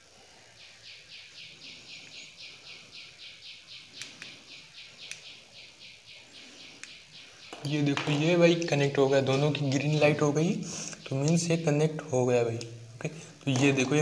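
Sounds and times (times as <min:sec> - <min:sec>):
rhythmic high-pitched chirping: 0:00.0 - 0:14.0
faint clicks: 0:04.0 - 0:04.4.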